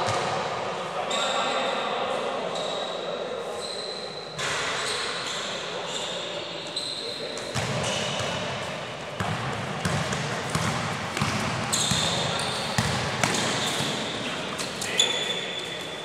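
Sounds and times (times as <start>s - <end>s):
shoe squeaks on floor: 2.6s - 8.4s, 11.7s - 16.0s.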